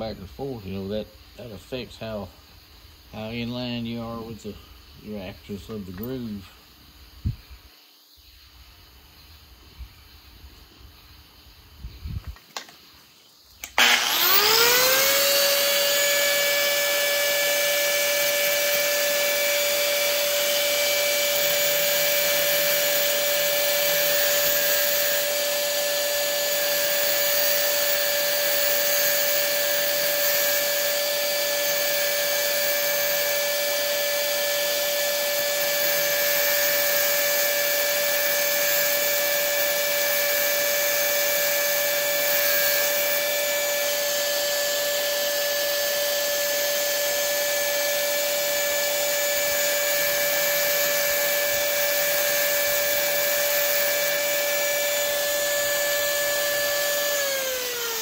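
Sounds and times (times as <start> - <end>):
electric grinding tool whining: 13.6 - 58.0.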